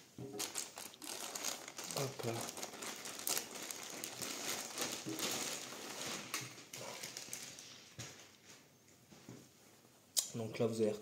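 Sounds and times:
plastic bag crinkling: 0.3s - 8.0s.

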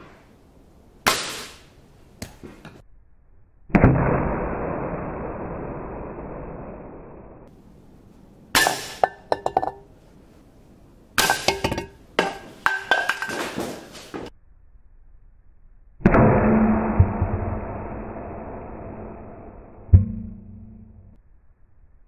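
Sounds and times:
low hum: 1.7s - 12.4s, 14.3s - 22.0s
pellets clinking on metal targets: 8.6s - 9.8s, 11.2s - 14.1s.

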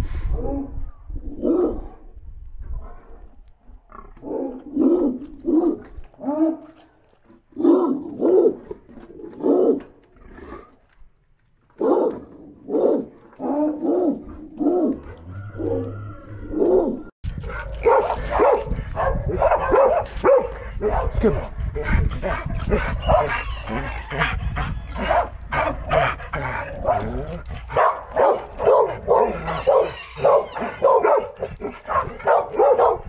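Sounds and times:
pig grunting: 20.5s - 32.4s
jumbled animal noise: 22.0s - 32.3s.

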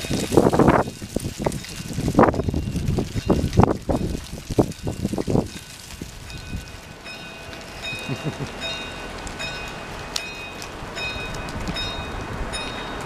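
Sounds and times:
wind hiss: 0.0s - 13.0s
level crossing warning alarm: 6.4s - 13.0s.

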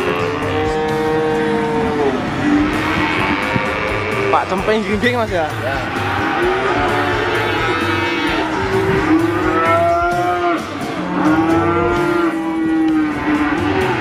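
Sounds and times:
cattle mooing: 0.0s - 14.0s.

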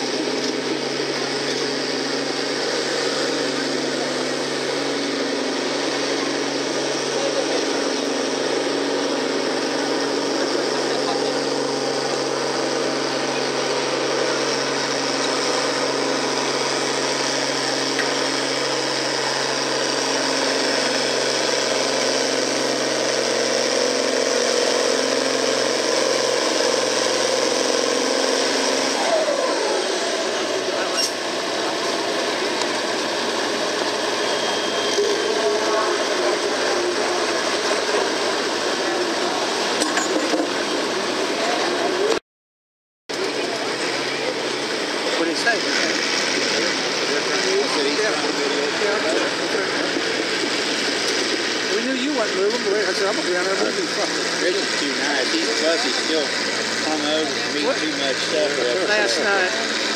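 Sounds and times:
tractor diesel engine running hard: 0.0s - 42.2s, 43.1s - 59.9s.

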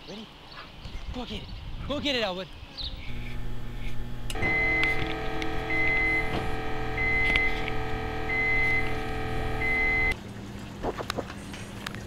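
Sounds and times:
steady electronic hum: 3.0s - 10.2s
high electronic alarm beeps: 4.4s - 10.2s.

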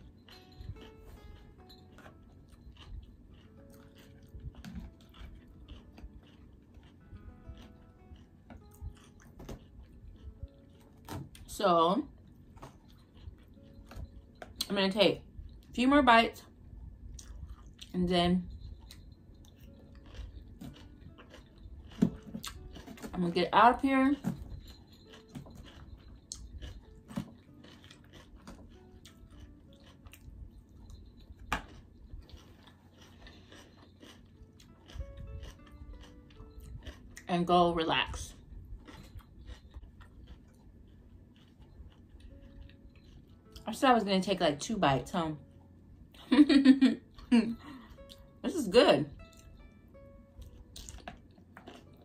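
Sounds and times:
quiet background music: 0.0s - 52.0s
fork crunching salad: 2.0s - 10.4s, 18.5s - 23.0s, 24.6s - 37.0s, 50.5s - 52.0s.

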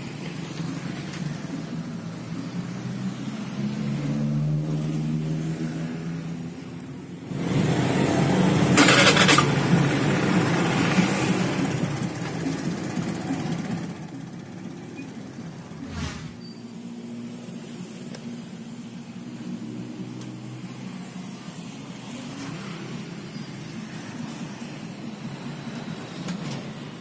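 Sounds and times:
scooter engine revving: 7.3s - 12.0s.

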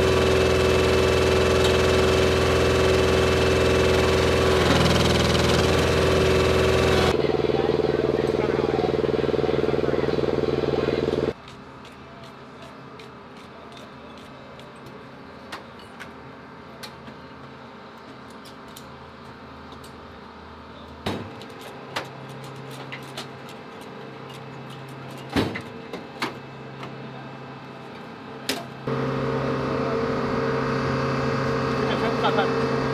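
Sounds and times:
steady machine hum: 0.0s - 11.4s, 28.3s - 32.9s.

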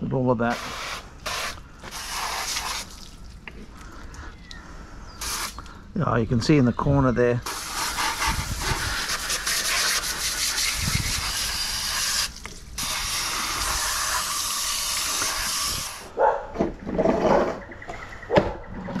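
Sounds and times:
hose spraying water into plastic: 0.4s - 3.4s, 5.2s - 5.7s, 7.4s - 16.1s.

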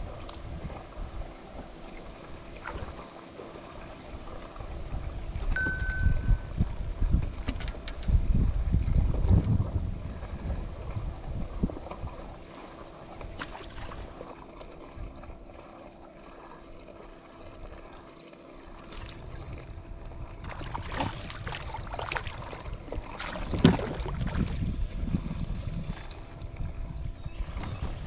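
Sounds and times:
low wind rumble: 0.0s - 3.0s, 3.7s - 14.1s, 19.0s - 28.0s
water sloshing and splashing: 0.0s - 28.0s.

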